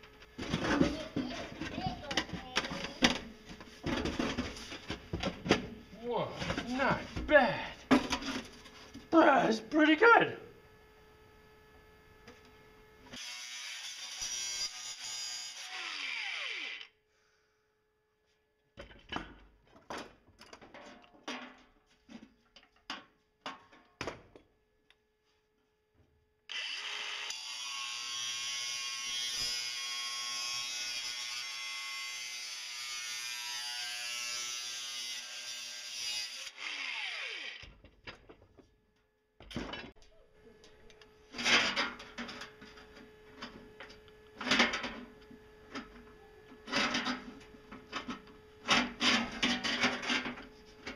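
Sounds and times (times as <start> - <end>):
angle grinder cutting metal: 13.2 - 16.9, 26.5 - 37.7.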